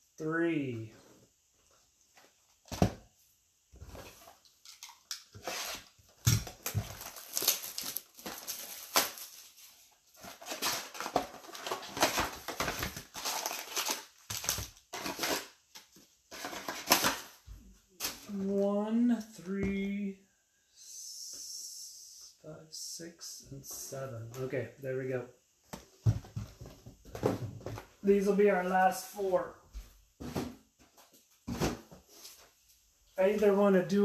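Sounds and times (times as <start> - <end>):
wrapping and cardboard rustling: 3.8 - 19.1.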